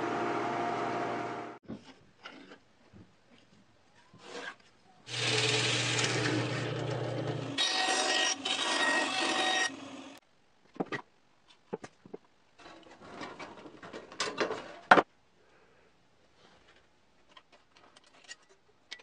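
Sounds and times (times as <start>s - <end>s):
bandsaw cutting wood: 5.1s - 10.2s
drill press boring through wood: 5.1s - 10.2s.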